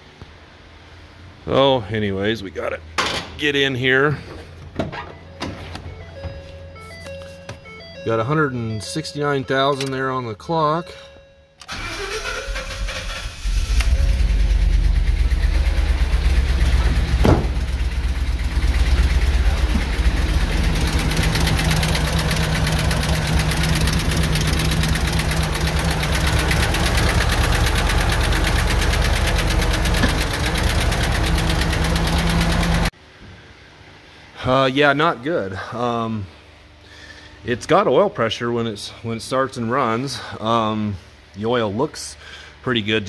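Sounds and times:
engine running rough with knocking: 14.1s - 32.9s.

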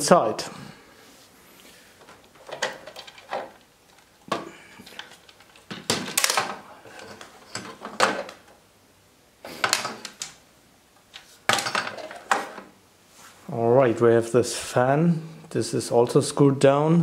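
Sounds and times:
plastic panel knocks and rattles: 5.6s - 6.6s.

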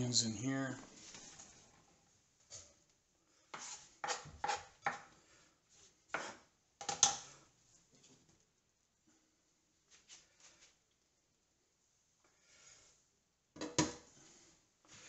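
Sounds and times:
knife scraping and tapping on wooden board: 3.5s - 5.1s, 6.1s - 7.2s.

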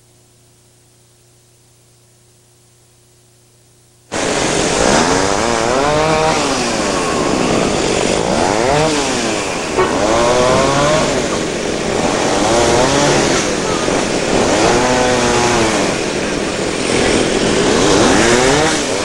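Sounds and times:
howling wind with whistling: 4.2s - 19.0s.

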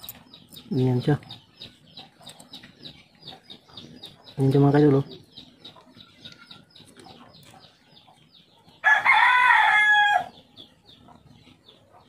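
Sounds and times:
rooster crowing: 8.8s - 10.4s.

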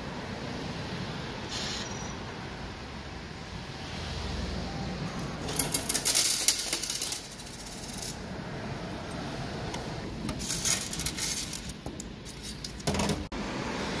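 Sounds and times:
coins clinking in metal tray: 5.4s - 8.2s, 10.4s - 13.2s.

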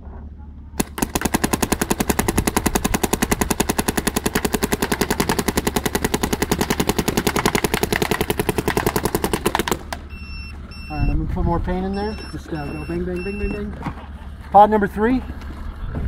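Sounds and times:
paintball marker rapid firing: 0.8s - 10.0s.

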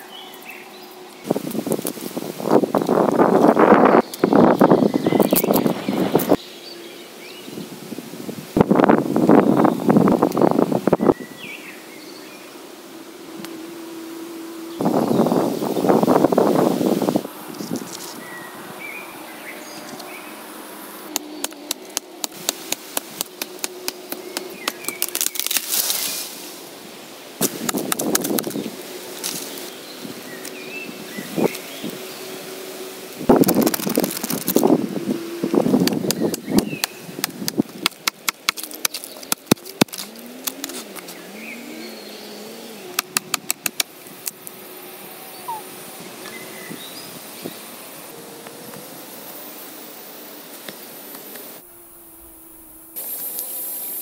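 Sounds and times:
machete chopping tree trunk: 27.4s - 28.5s, 35.8s - 40.6s.

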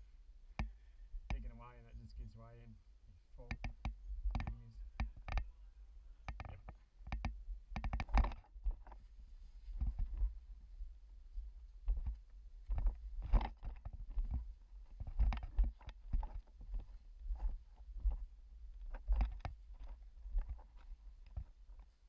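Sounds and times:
gear knocking and scraping on rock: 6.3s - 9.0s, 11.9s - 22.0s.

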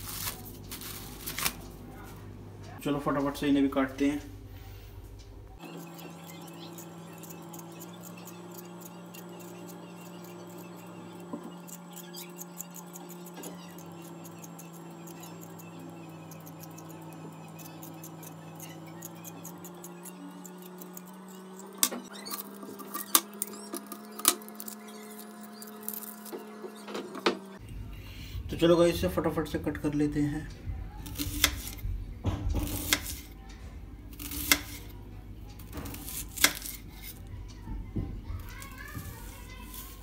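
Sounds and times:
steady low hum: 0.0s - 40.0s
peeler scraping potato skin: 5.6s - 27.6s, 31.0s - 31.8s, 32.5s - 33.4s, 34.1s - 35.0s, 35.6s - 37.3s, 38.4s - 40.0s.

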